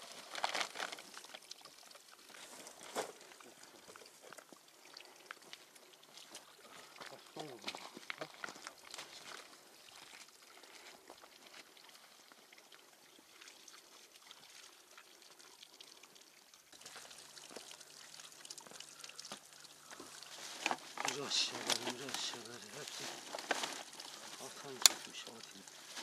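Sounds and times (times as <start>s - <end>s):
crackles and rustling: 0.0s - 11.8s, 18.6s - 26.0s
water trickling from spout: 0.0s - 26.0s.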